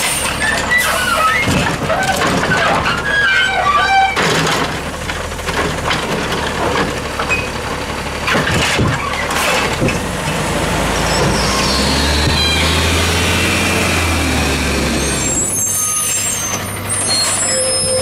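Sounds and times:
garbage truck engine running: 0.0s - 17.8s
knocks and clatters: 1.4s - 3.1s, 4.1s - 7.5s, 8.2s - 10.4s.

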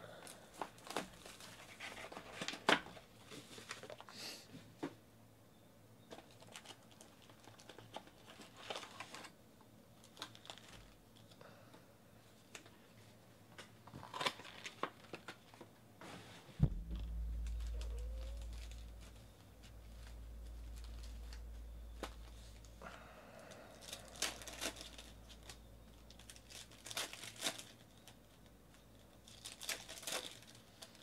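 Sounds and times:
foil packs rustling: 0.6s - 4.1s, 6.2s - 9.4s, 10.0s - 11.4s, 13.9s - 16.4s, 19.9s - 31.0s
plastic wrap crinkling and tearing: 6.2s - 9.3s, 10.0s - 11.4s, 13.9s - 15.7s, 23.5s - 31.0s.

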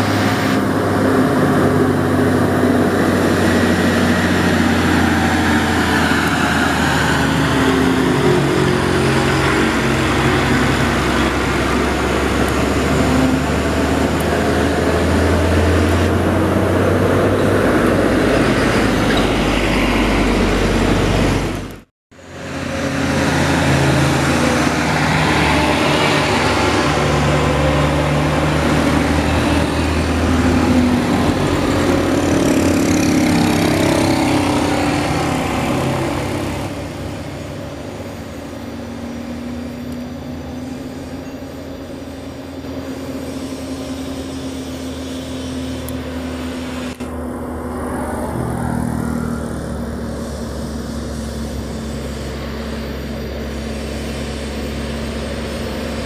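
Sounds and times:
road noise: 0.0s - 56.0s
truck diesel engine drone: 0.0s - 56.0s.

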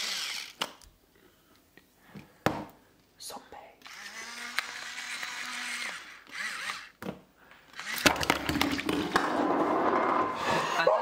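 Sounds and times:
seasoning grinder grinding: 0.0s - 0.6s.

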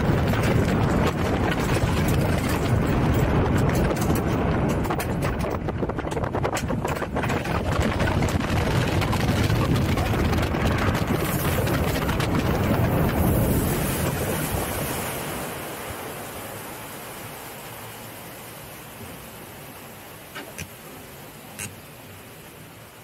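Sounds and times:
wind rushing over microphone: 0.0s - 16.5s
water washing: 0.0s - 23.0s.

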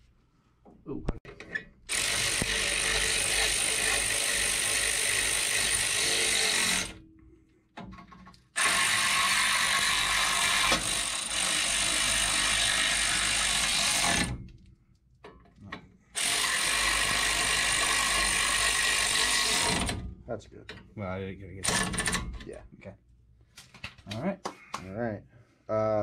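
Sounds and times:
pneumatic air ratchet: 1.9s - 7.0s, 8.6s - 14.4s, 16.2s - 20.1s, 21.6s - 22.3s.

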